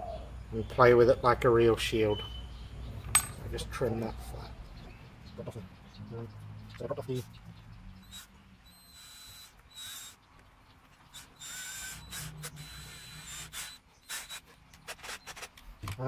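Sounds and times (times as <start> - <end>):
cordless drill whining: 8.0 - 10.2, 11.1 - 15.4.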